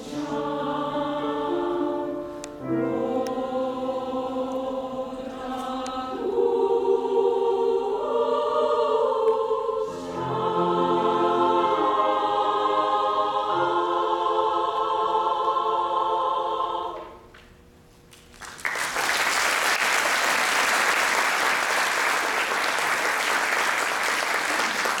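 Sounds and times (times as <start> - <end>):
choir holding a chord: 0.0 - 17.3
audience applause: 18.4 - 25.0.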